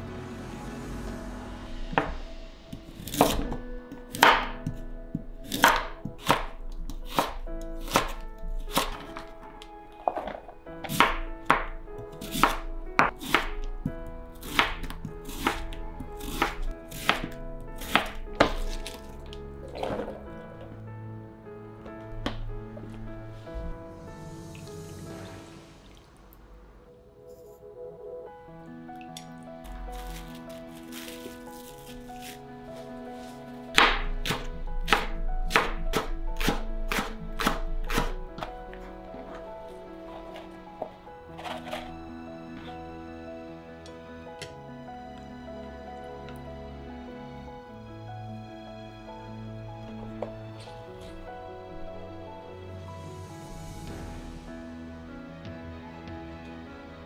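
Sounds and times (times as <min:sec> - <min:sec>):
soft background music: 0:00.0 - 0:57.0
knife slicing radish: 0:02.8 - 0:04.6, 0:05.4 - 0:09.3, 0:10.8 - 0:11.6, 0:12.2 - 0:13.6, 0:14.4 - 0:19.1, 0:29.6 - 0:32.4, 0:33.2 - 0:38.2, 0:41.4 - 0:41.9.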